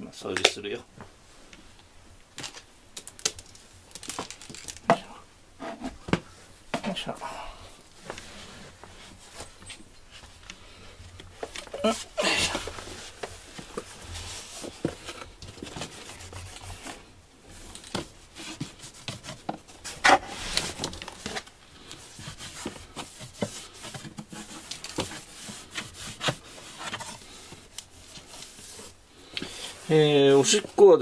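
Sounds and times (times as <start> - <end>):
plastic sheet rustling: 2.4 - 5.0.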